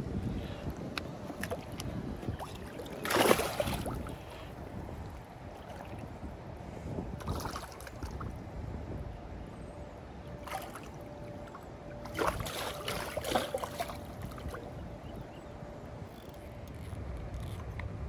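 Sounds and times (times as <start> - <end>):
fish splashing in water: 2.4 - 4.1, 12.0 - 14.5.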